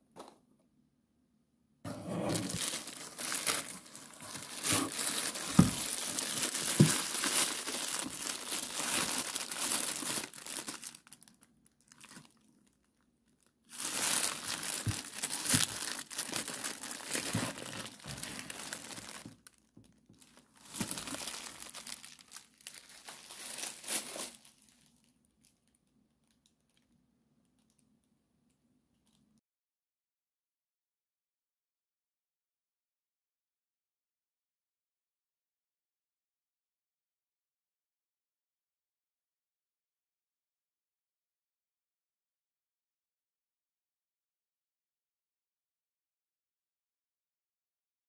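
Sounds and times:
plastic wrapping crinkling: 2.3s - 27.8s.

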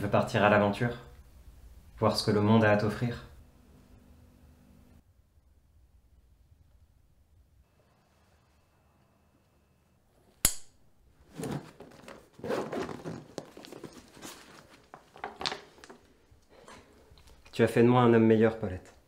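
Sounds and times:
sharp snap: 10.4s - 10.8s
backpack fabric and straps rustling: 11.2s - 17.1s.

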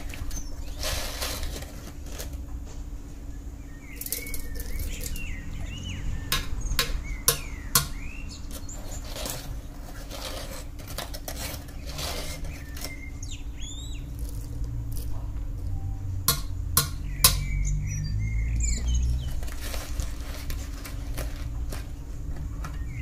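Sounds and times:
foil crinkling and rustling: 0.0s - 2.4s, 8.5s - 13.1s, 19.2s - 22.4s.

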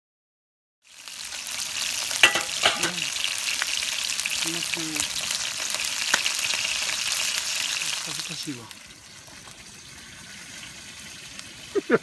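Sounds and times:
food sizzling in a frying pan: 0.8s - 12.0s
oil popping: 2.1s - 3.2s.

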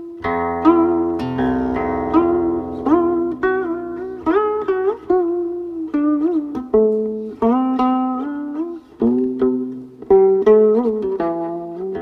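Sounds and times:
plucked zither notes bending: 0.0s - 12.0s.

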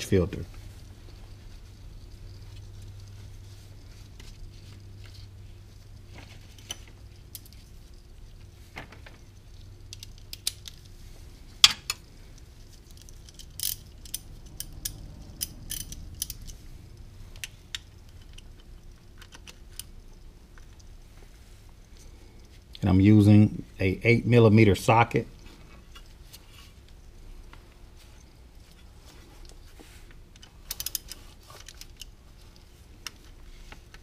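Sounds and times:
hand tools clinking: 12.9s - 16.6s
ratchet clicking: 30.6s - 32.1s.

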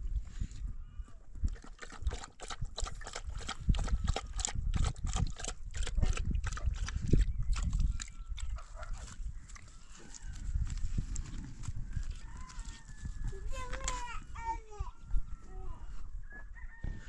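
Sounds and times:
dog eating clicking sounds: 1.5s - 9.1s.

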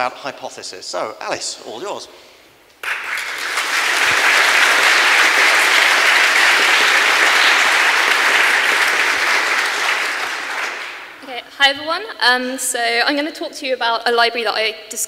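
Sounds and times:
audience applauding: 2.8s - 11.2s.

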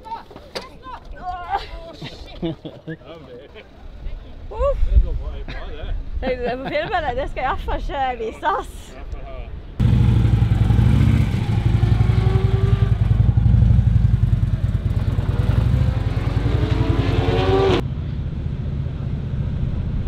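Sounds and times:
motorcycle engine revving: 9.8s - 17.9s.

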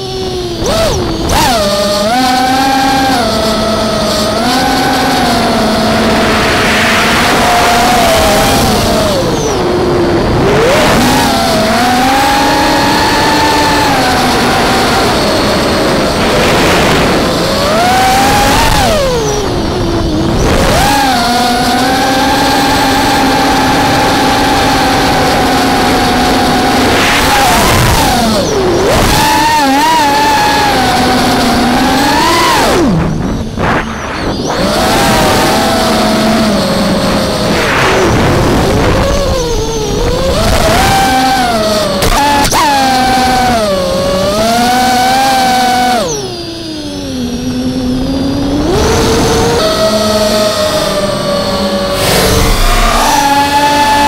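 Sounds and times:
quadcopter motors whining: 0.0s - 54.0s
wind rushing: 5.2s - 10.8s, 15.4s - 20.9s.

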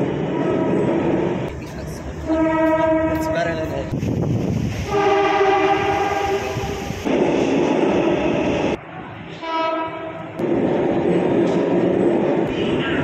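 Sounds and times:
train running: 0.0s - 13.0s
train horn blast: 0.3s - 1.2s, 2.2s - 3.8s, 4.9s - 6.9s, 9.4s - 10.3s.

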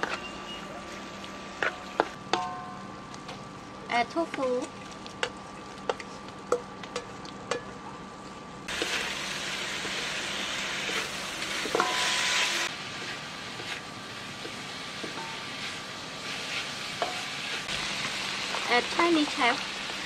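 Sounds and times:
sizzling in oil: 8.6s - 20.0s.

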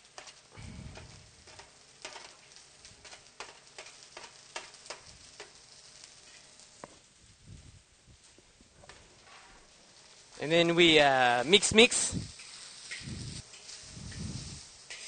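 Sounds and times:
spatula scraping a wok: 0.0s - 6.5s, 12.0s - 15.0s
faint sizzle: 0.0s - 15.0s.

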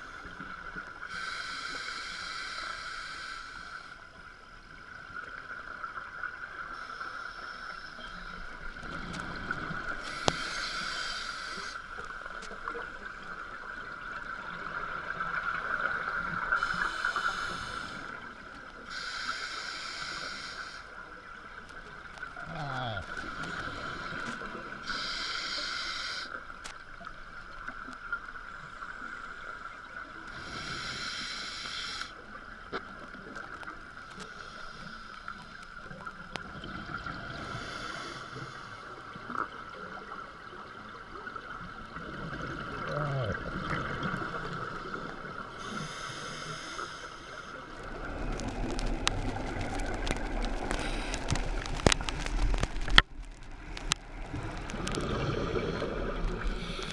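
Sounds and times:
exhaled bubbles underwater: 35.9s - 46.2s, 47.5s - 56.9s.

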